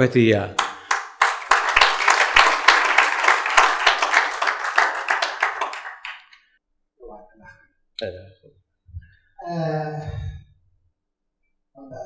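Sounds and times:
audience applauding: 0.6s - 6.4s.

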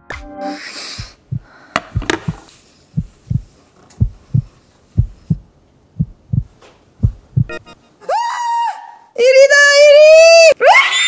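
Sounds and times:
heartbeat thumps: 1.0s - 7.7s.

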